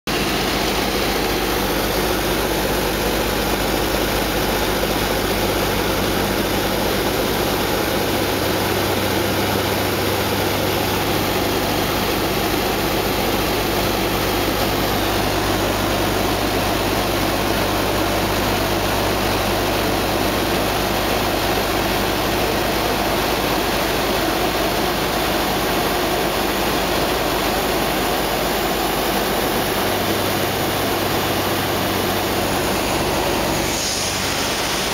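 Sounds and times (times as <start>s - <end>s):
airflow noise: 32.1s - 34.9s.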